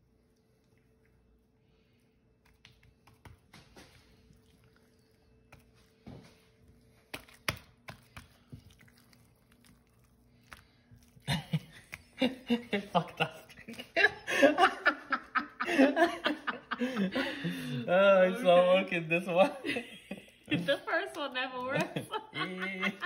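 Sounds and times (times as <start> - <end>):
hands patting dough: 0.6 - 14.3.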